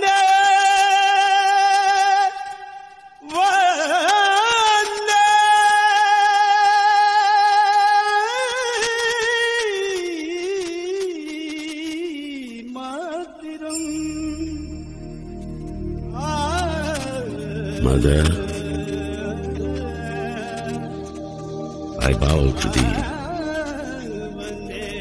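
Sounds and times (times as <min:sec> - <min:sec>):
high voice singing wordless melody: 0:16.2 - 0:25.0.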